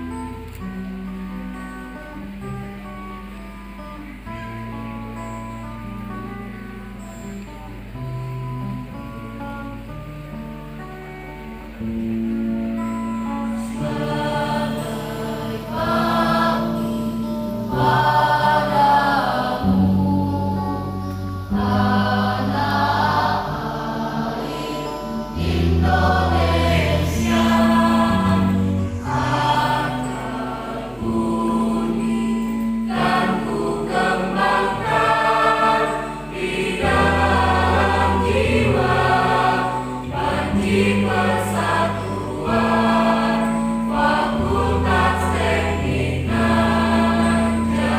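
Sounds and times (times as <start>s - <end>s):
mixed choir singing in parts: 13.4s - 47.9s.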